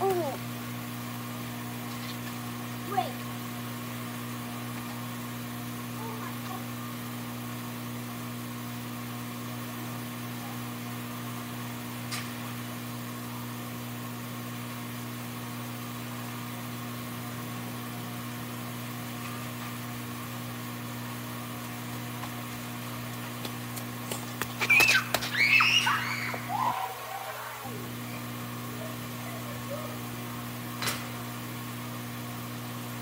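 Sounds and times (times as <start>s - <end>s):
motor humming: 15.5s - 33.0s.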